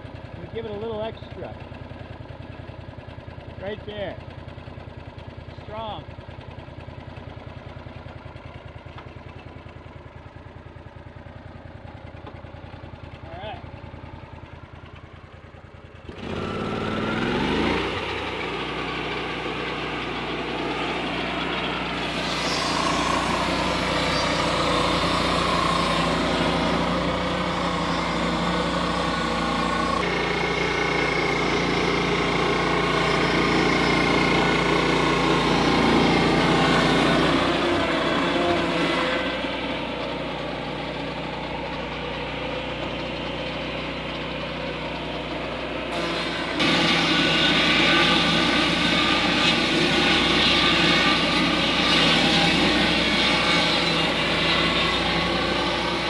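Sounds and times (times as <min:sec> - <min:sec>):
engine revving: 0:16.1 - 0:56.0
saw blade cutting log: 0:16.1 - 0:56.0.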